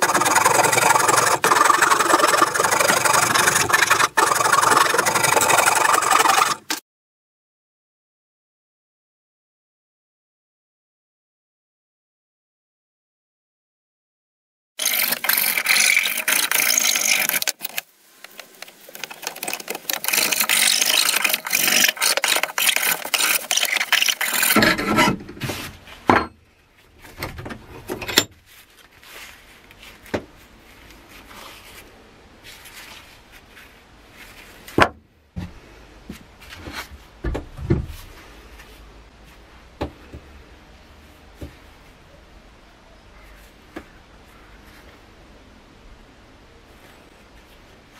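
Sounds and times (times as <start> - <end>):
wood rasp scraping wood: 0.0 - 6.8, 14.8 - 17.8, 18.9 - 25.8
handling of wood: 14.8 - 40.3.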